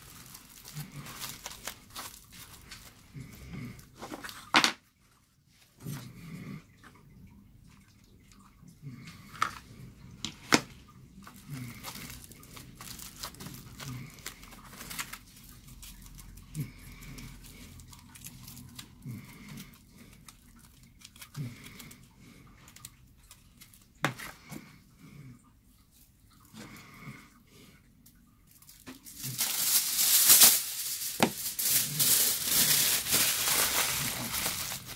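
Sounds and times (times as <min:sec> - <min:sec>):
aluminium foil crumpling: 0:00.0 - 0:04.6, 0:11.2 - 0:24.0, 0:28.5 - 0:34.9.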